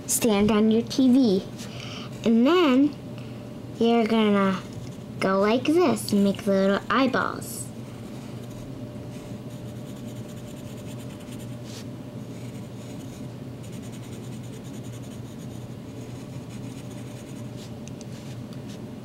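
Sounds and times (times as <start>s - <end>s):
steady low hum: 0.0s - 19.0s
pencil scratching on paper: 9.5s - 11.8s, 12.4s - 17.7s.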